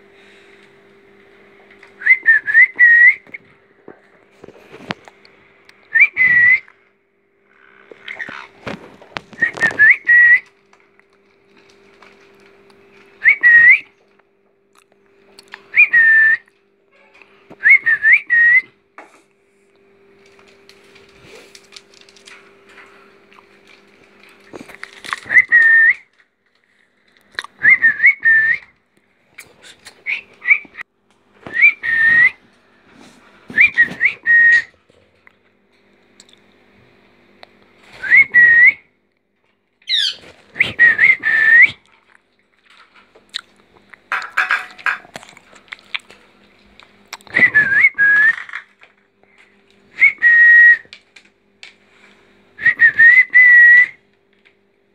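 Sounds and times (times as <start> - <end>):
steady low hum: 0.0 - 54.9
short rising and falling whistles: 2.0 - 3.2, 38.0 - 38.8, 50.0 - 50.9, 52.6 - 54.0.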